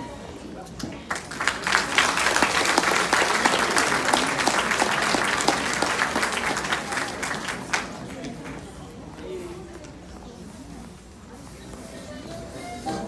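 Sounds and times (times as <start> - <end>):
audience applauding: 1.1 - 8.4.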